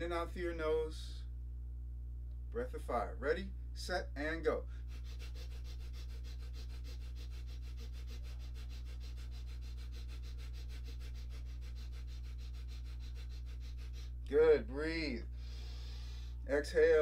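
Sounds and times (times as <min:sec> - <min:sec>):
steady low hum: 0:00.0 - 0:17.0
man sniffing breaths: 0:04.7 - 0:14.3, 0:15.3 - 0:16.5.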